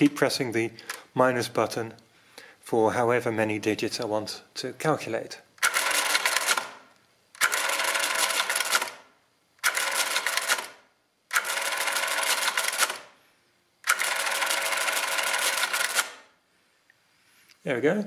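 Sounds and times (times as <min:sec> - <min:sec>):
mechanical calculator clattering: 0:05.6 - 0:06.8, 0:07.4 - 0:09.0, 0:09.6 - 0:13.1, 0:13.9 - 0:16.2.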